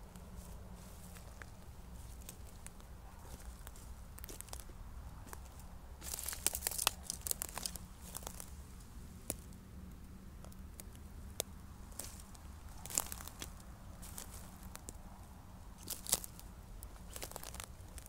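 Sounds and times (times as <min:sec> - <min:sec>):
dry twigs crackling and snapping: 0:00.0 - 0:18.0.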